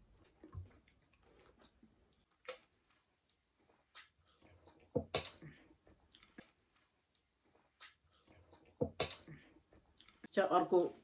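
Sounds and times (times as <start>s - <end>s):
chewing and wet mouth noises: 0.0s - 10.4s
sharp mouth smacks and clicks: 3.9s - 4.4s, 7.7s - 8.2s.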